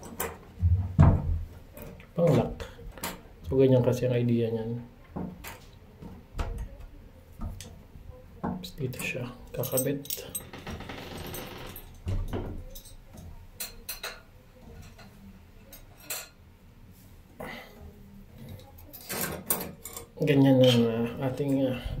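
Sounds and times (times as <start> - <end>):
light metallic clinks and taps: 11.8 - 16.4.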